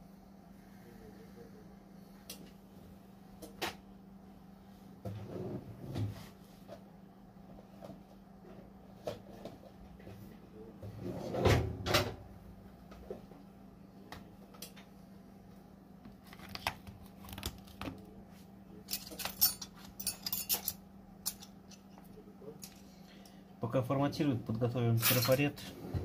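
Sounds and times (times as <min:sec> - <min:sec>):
steady low hum: 0:00.0 - 0:26.0
small tools clinking: 0:18.9 - 0:21.8.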